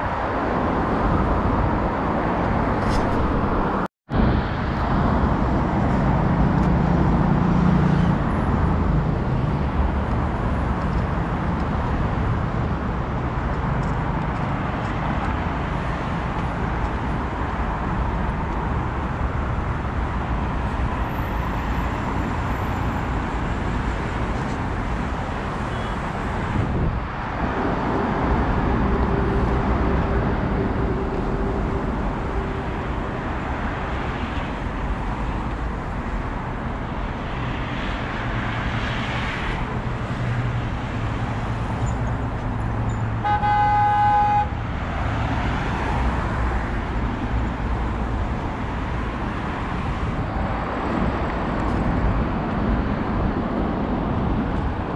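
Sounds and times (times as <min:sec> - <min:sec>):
road traffic passing: 0:00.0 - 0:54.9
car horn: 0:43.1 - 0:44.6.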